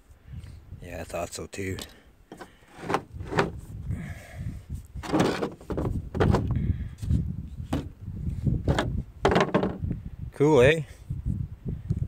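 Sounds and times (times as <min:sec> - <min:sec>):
stone knocking on plastic: 0:08.7 - 0:09.8.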